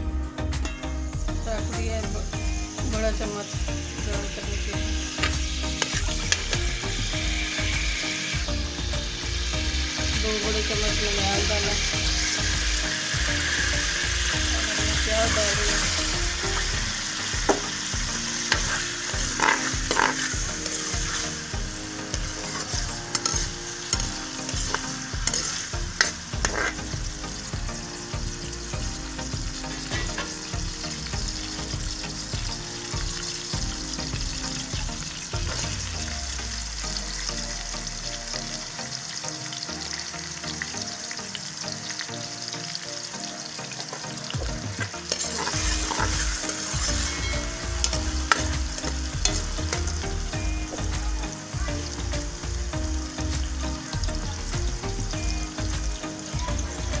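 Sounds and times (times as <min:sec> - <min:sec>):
onions sizzling in hot oil: 0:00.0 - 0:57.0
metal ladle scraping pan: 0:05.2 - 0:06.6, 0:16.6 - 0:27.0, 0:29.7 - 0:30.5, 0:44.7 - 0:49.9.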